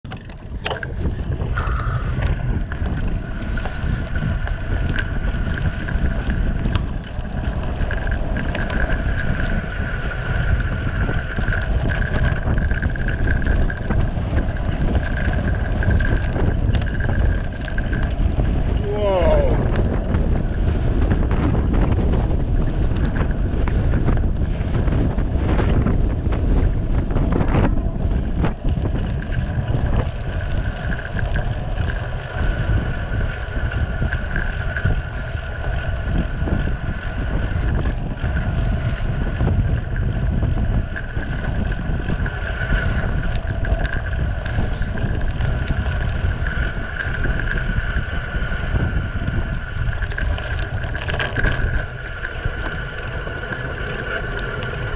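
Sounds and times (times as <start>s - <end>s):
tyres rumbling on gravel: 0.0s - 54.9s
wind buffeting microphone: 0.0s - 54.9s
steady high-pitched whine: 0.7s - 6.2s.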